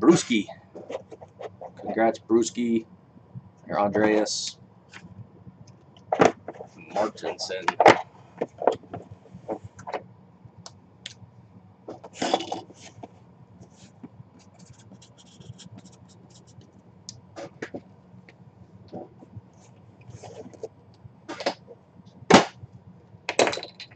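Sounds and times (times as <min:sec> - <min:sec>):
marker pen scratching on cardboard: 0:00.8 - 0:02.0, 0:13.8 - 0:16.6.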